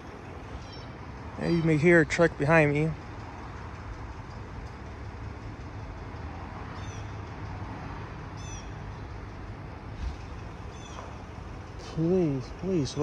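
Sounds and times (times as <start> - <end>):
truck engine idling: 0.0 - 13.0
bird chirping: 8.4 - 9.1, 10.3 - 11.2.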